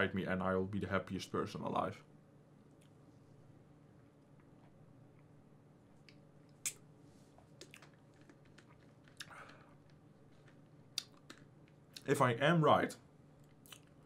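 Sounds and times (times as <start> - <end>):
low room hum: 0.0 - 14.0
mouth clicks and smacks: 6.0 - 6.9, 7.5 - 12.1, 13.4 - 14.0.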